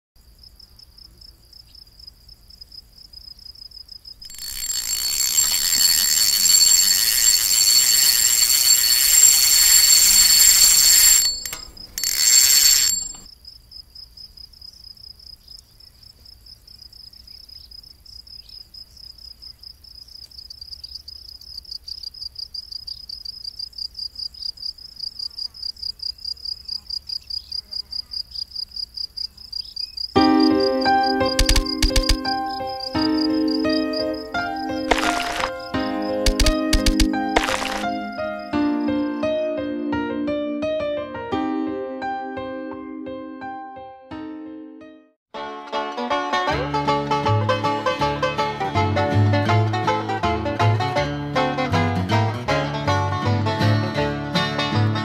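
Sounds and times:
crickets chirping: 0:00.2 - 0:39.2.

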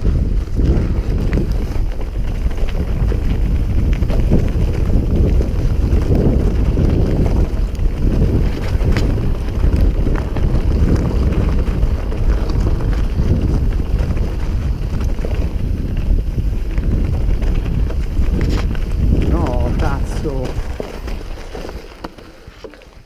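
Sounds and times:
bike rattling and clicking: 0:00.0 - 0:23.0
tyres rumbling on rough dirt: 0:00.0 - 0:23.0
wind buffeting microphone: 0:00.0 - 0:23.0.

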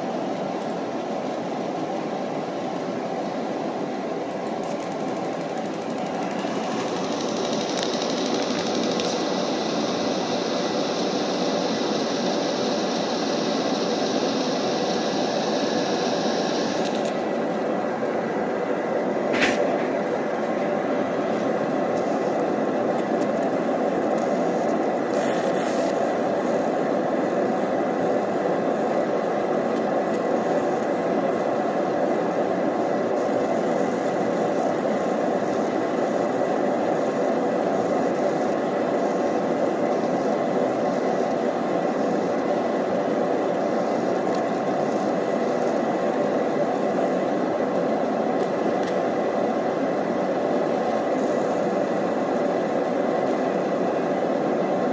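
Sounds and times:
fume extractor rushing air: 0:00.0 - 0:54.9
brief high hiss: 0:19.3 - 0:19.9, 0:25.1 - 0:26.1.

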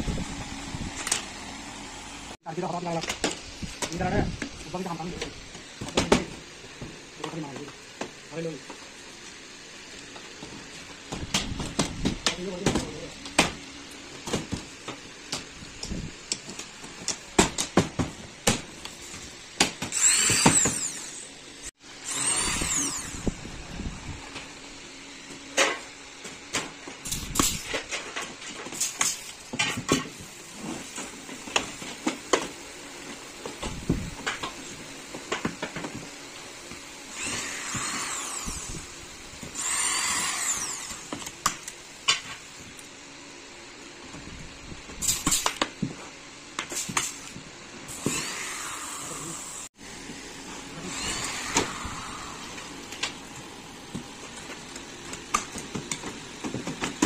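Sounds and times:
power drill spinning: 0:19.8 - 0:23.9, 0:37.0 - 0:41.3, 0:47.9 - 0:49.7, 0:50.7 - 0:52.9.

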